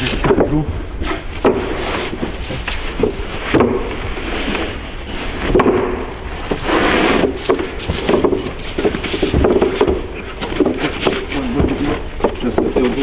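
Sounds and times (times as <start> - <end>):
wooden panels knocking: 0.0 - 0.8, 1.4 - 4.1, 5.5 - 6.6, 7.2 - 13.0
wooden panels scraping: 0.0 - 13.0.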